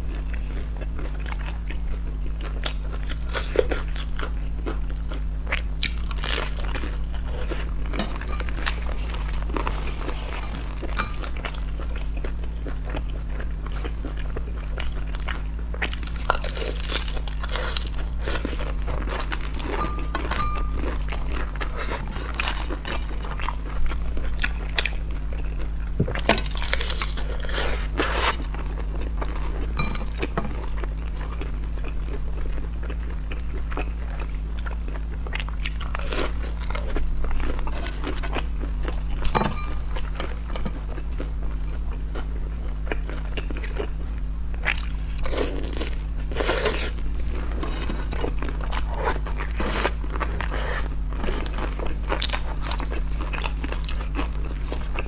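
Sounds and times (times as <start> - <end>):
crunching and chewing dumplings: 0.0 - 55.0
steady low hum: 0.0 - 55.0.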